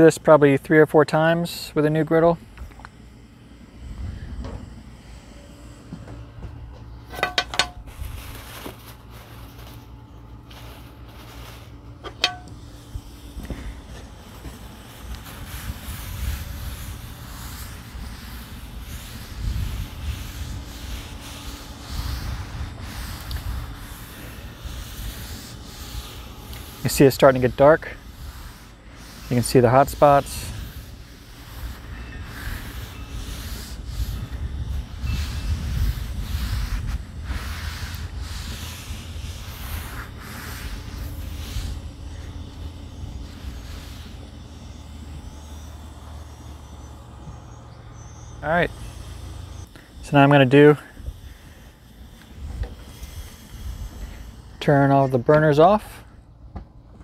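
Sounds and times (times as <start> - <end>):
steady low rumble: 0.0 - 57.0
paper towels rubbing on griddle: 3.5 - 55.9.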